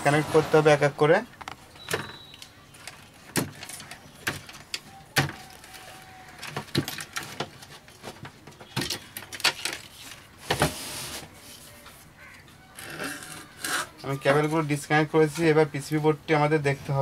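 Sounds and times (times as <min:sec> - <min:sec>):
cables being handled: 0:01.3 - 0:10.6.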